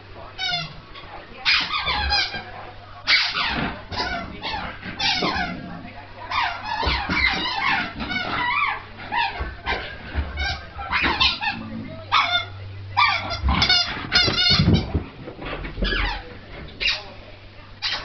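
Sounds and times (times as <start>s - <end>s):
squeaky rubber ball squeaking: 3.1s - 5.6s, 6.3s - 9.8s, 10.4s - 15.0s, 15.8s - 16.2s.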